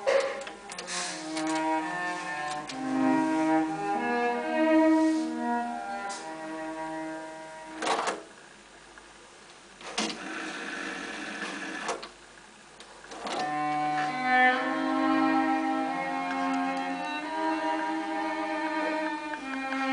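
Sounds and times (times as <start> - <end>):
bowed string music from tape: 0.0 - 8.3, 13.0 - 19.9
tape rewinding noise: 9.9 - 12.1.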